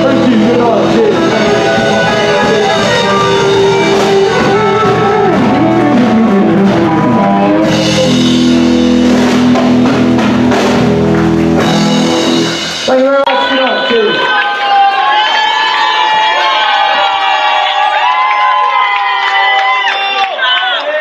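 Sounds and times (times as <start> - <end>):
bass guitar: 0.0 - 13.4
drum kit: 0.0 - 13.7
electric guitars: 0.0 - 14.0.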